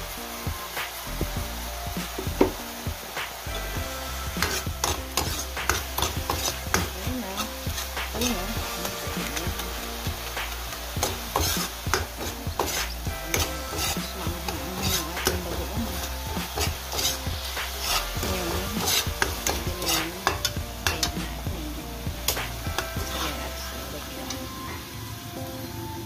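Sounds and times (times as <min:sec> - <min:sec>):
vegetables sizzling in oil: 0:00.0 - 0:26.0
metal ladle scraping a wok: 0:04.0 - 0:21.2, 0:22.3 - 0:24.6.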